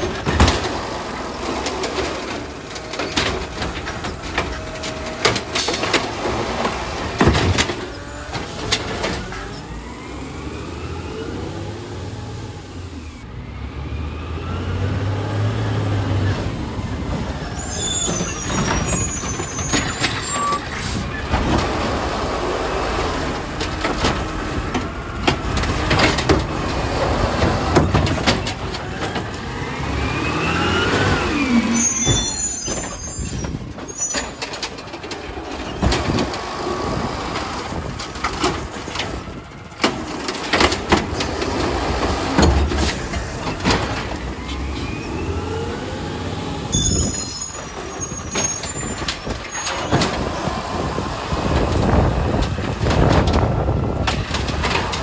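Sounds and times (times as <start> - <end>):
diesel engine revving: 0.0 - 17.5, 20.8 - 32.4, 35.2 - 46.7.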